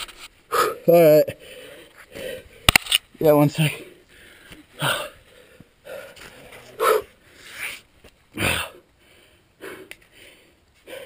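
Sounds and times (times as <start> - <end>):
heavy forceful breathing: 0.5 - 2.7, 3.6 - 11.0.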